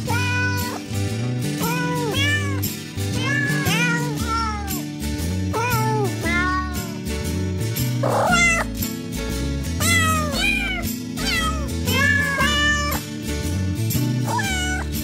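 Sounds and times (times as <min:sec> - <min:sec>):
kittens meowing: 0:00.0 - 0:00.8, 0:01.6 - 0:04.8, 0:05.6 - 0:07.0, 0:08.0 - 0:08.7, 0:09.8 - 0:13.0, 0:14.2 - 0:15.0
background music with steady beat: 0:00.2 - 0:15.0.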